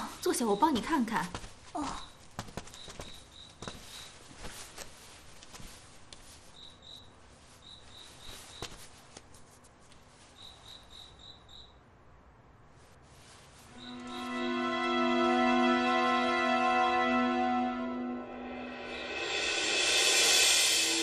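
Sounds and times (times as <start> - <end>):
cricket chirping: 2.8 - 4.1, 6.6 - 8.7, 10.4 - 11.8, 13.8 - 14.1.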